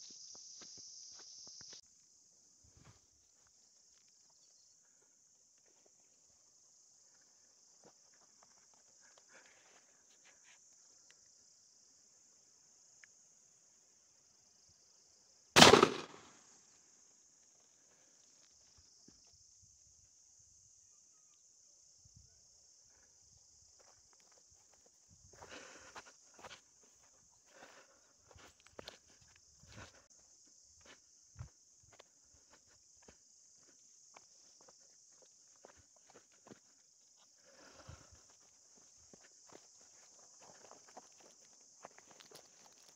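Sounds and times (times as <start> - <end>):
high-pitched insect buzz: 0.0 - 1.8
shotgun shot: 15.6 - 16.4.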